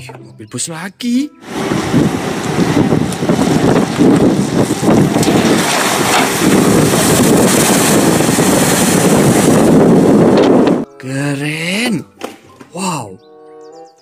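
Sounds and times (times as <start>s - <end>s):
bus engine running: 1.4s - 10.8s
wind noise on microphone: 1.4s - 10.9s
water splashing: 1.5s - 10.0s.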